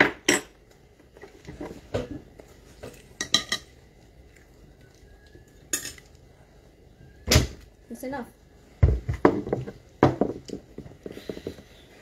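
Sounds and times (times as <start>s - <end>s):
utensils clinking on plates: 3.2s - 3.7s, 5.7s - 6.1s.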